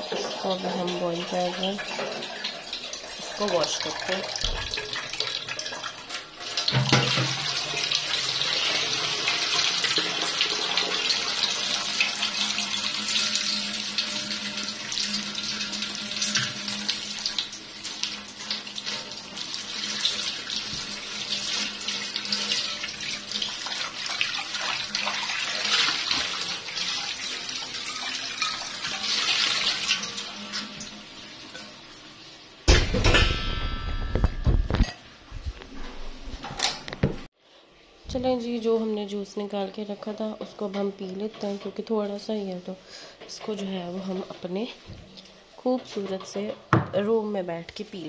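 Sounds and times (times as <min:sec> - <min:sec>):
pot being scrubbed: 0:00.0 - 0:30.9
tap water running into pot: 0:00.0 - 0:32.3.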